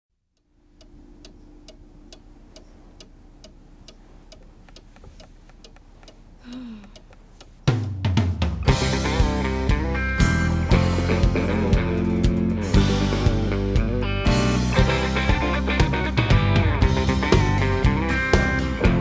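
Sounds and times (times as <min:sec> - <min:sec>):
faint low hum: 0:00.2 - 0:07.8
clock ticking: 0:00.3 - 0:19.0
loud guitar rock music: 0:08.6 - 0:19.0.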